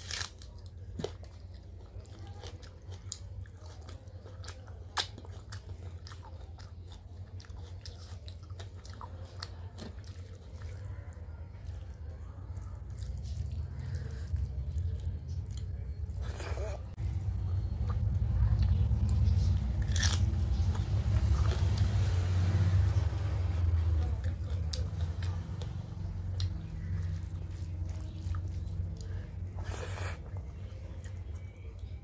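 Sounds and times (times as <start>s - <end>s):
wet chewing and mouth smacks: 0.0s - 16.5s, 24.2s - 32.0s
steady low hum: 8.2s - 32.0s.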